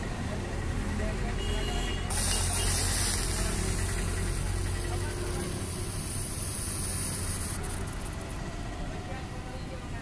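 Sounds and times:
machine humming with hiss: 2.1s - 8.4s.

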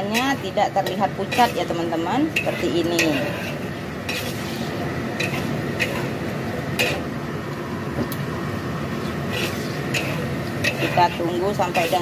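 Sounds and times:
metal spatula scraping a wok: 0.0s - 7.1s, 9.0s - 12.0s
food sizzling: 0.0s - 12.0s.

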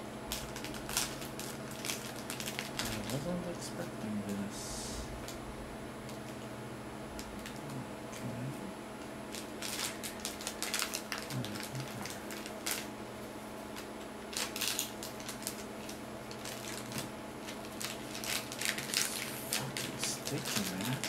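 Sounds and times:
plastic packaging crinkling: 0.3s - 3.8s, 9.3s - 21.0s.

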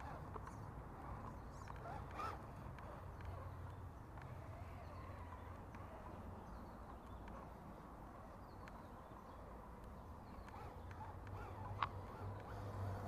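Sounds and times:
small electric motor hum: 1.0s - 3.5s, 8.1s - 13.0s
sharp clicks: 9.8s - 13.0s.

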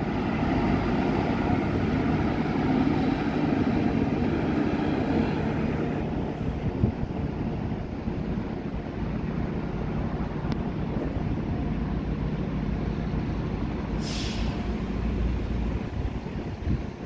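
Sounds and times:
train rumbling: 0.0s - 17.0s
wind on microphone: 3.6s - 8.8s, 15.7s - 17.0s
short hiss: 14.0s - 14.7s.

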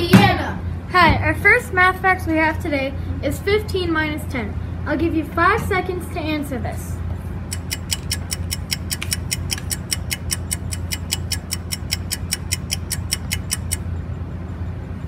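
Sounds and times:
steady low hum: 0.0s - 15.0s
clock-like ticking: 7.5s - 13.8s.

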